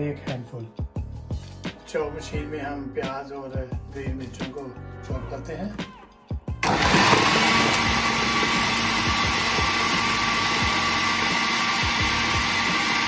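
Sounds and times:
food processor motor whine: 6.6s - 13.0s.

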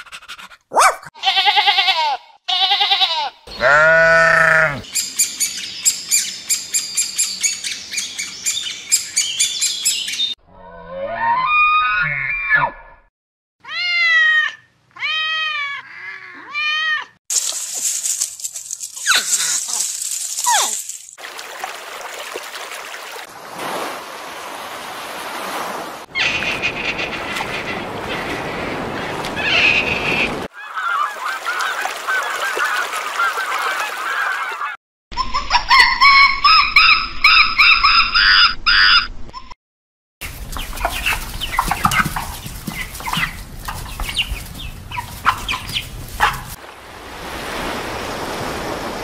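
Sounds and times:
unpitched animal noise: 3.5s - 4.9s
animal calls rising and falling: 10.6s - 13.0s.

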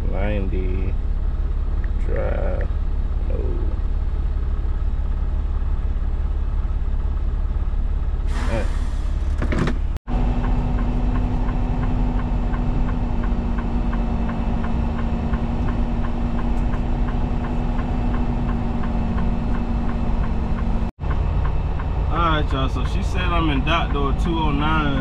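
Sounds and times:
diesel engine hum: 0.0s - 25.0s
light regular ticking: 10.3s - 24.7s.

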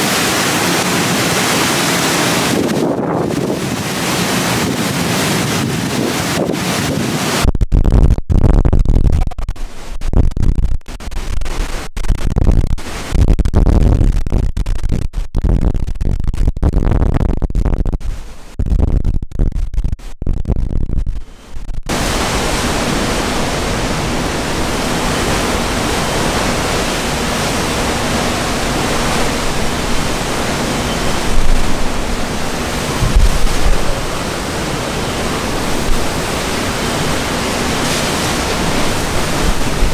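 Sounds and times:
wind buffeting microphone: 0.0s - 7.6s, 21.9s - 39.9s
roar of wind and rain: 0.0s - 19.5s, 20.4s - 39.9s.

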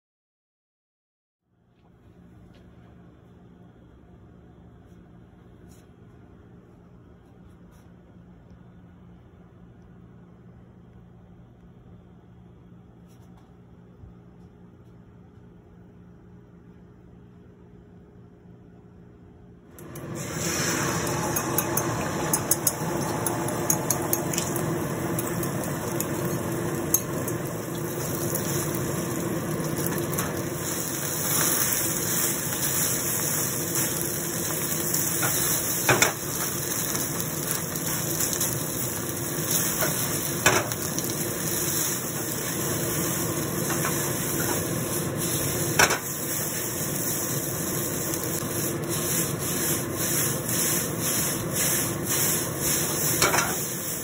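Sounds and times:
food sizzling in a wok: 19.8s - 54.0s
spatula scraping rice in wok: 43.6s - 54.0s.

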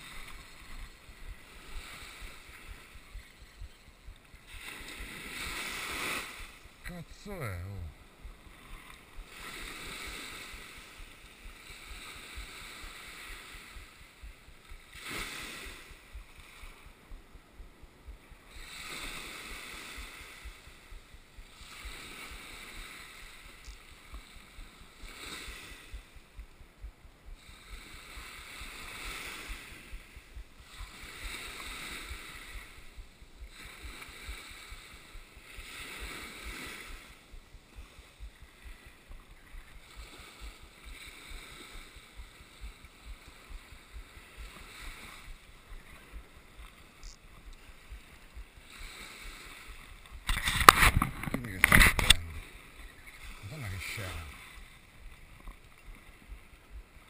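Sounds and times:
small waves breaking on beach: 0.0s - 57.0s.

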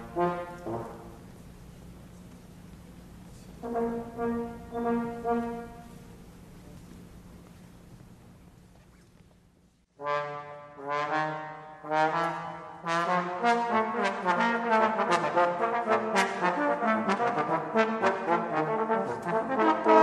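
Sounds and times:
trombones playing: 0.0s - 1.4s, 3.6s - 6.2s, 9.9s - 20.0s.

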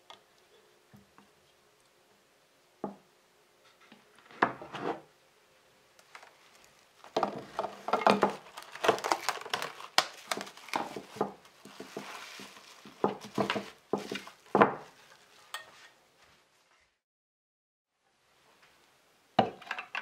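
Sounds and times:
cling film crinkling: 6.0s - 15.5s.

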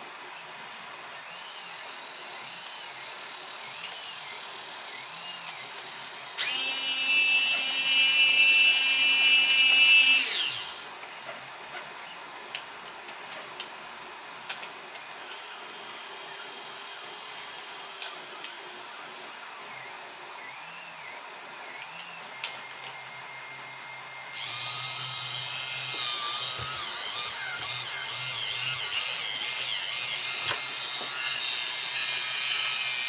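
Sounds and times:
high-pitched motor whine: 1.2s - 10.9s, 15.2s - 33.0s
servo motor whirring: 1.3s - 10.8s, 15.2s - 19.8s, 24.4s - 33.0s.

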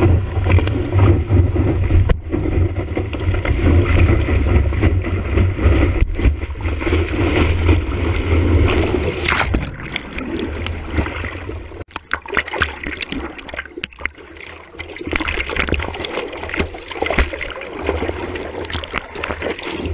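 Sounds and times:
water sloshing against board: 0.0s - 19.9s
whitewater rushing and splashing: 3.2s - 19.9s.

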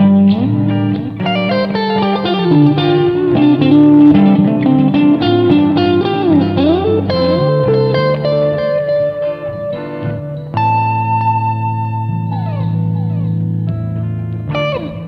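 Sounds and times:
electric guitar lead notes: 0.0s - 15.0s
held bass notes: 0.0s - 15.0s.

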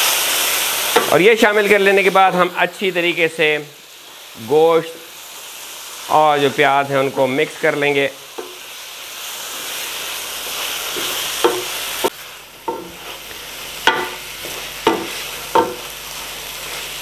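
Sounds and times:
meat sizzling in hot oil: 0.0s - 17.0s
wooden spoon stirring: 10.8s - 17.0s
spoon knocking against pot: 11.4s - 11.7s, 13.8s - 14.2s, 14.8s - 15.9s.

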